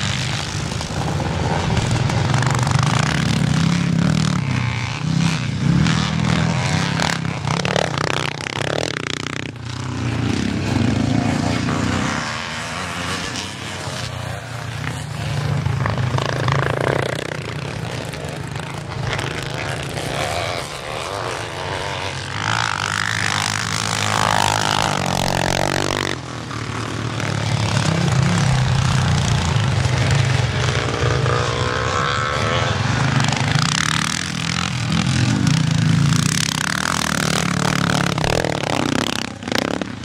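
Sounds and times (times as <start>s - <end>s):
motorcycle engines revving: 0.0s - 40.0s.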